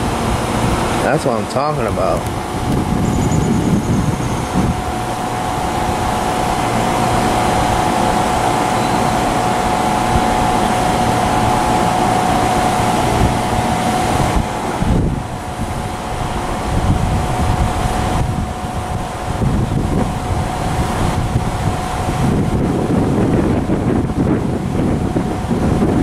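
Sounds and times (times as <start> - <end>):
steady whine: 0.0 - 26.0.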